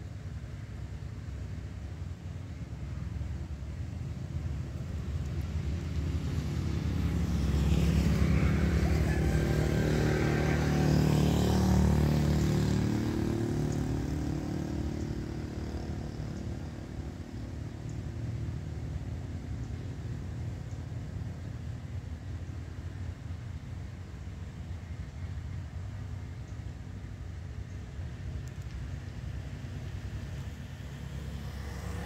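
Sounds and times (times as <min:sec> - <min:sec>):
vehicle passing by: 0:04.1 - 0:20.6, 0:29.2 - 0:32.0.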